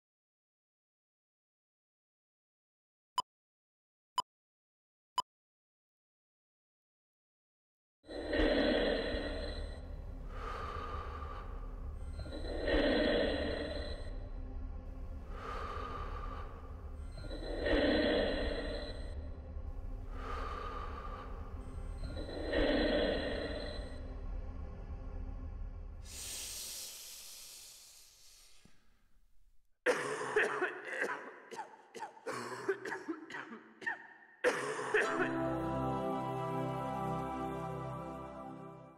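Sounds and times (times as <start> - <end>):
mechanical respirator breathing: 8.2 - 14.4, 15.2 - 19.4, 20.0 - 24.1, 26.0 - 28.9
man making cough-like sounds: 29.9 - 35.4.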